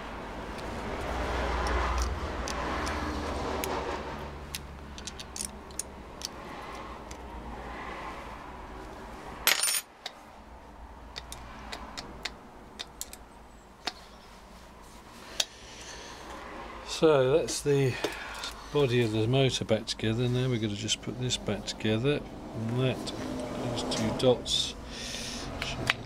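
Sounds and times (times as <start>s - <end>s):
spanner clicking on metal nuts: 4.5s - 6.4s.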